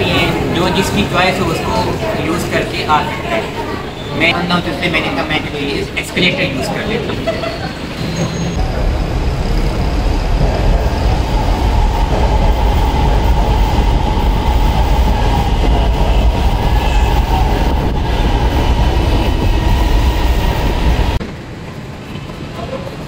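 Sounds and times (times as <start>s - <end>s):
electric train rumbling on track: 0.0s - 23.0s.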